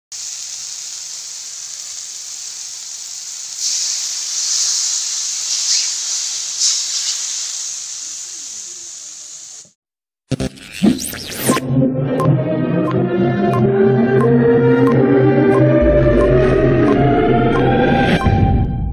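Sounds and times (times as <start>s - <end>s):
food sizzling in hot oil: 0.1s - 9.8s
intro music: 11.4s - 18.9s.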